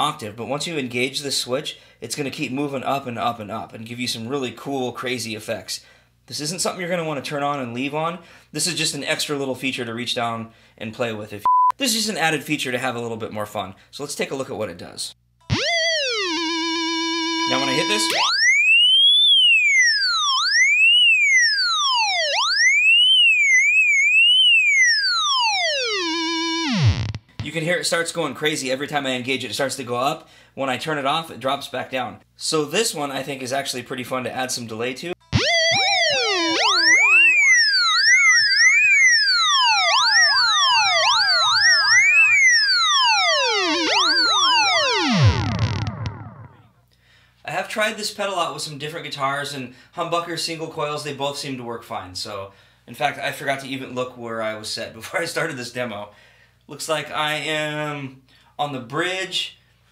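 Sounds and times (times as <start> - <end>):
whistling theremin tone: 15.5 - 27.1, 35.3 - 46.6.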